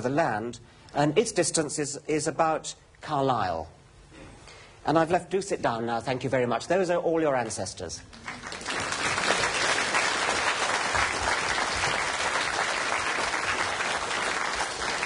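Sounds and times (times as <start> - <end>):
audience applauding: 8.1 - 15.0.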